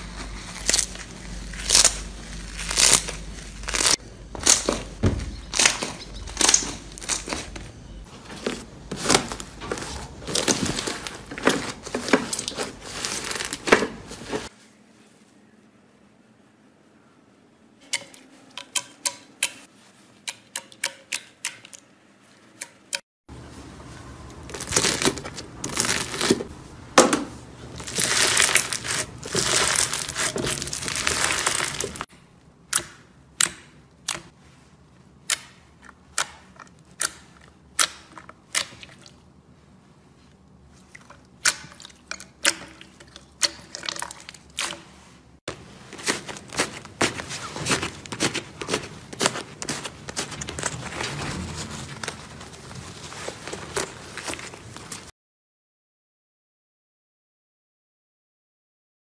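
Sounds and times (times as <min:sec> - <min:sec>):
hands squishing slime: 0:45.8 - 0:50.7.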